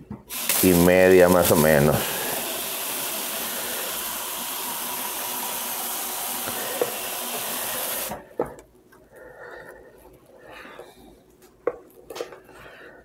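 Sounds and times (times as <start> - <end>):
steady hiss: 0.3 - 8.2.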